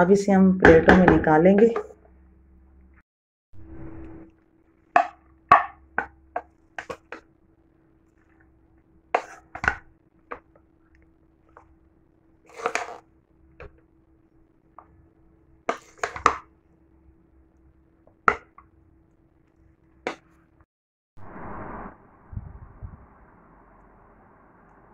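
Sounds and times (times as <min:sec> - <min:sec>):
spoon scraping: 0:09.2 - 0:09.8, 0:12.5 - 0:13.0.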